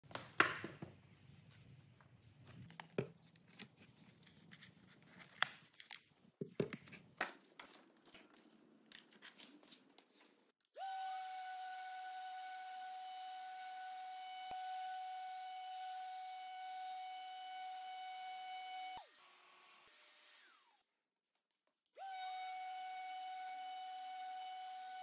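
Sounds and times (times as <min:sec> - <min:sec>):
sander whining: 0:10.8 - 0:20.7, 0:22.0 - 0:25.0.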